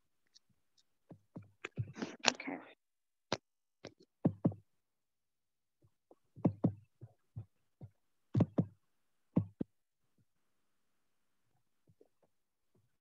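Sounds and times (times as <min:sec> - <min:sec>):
sharp thumps in pairs: 0:06.4 - 0:08.8.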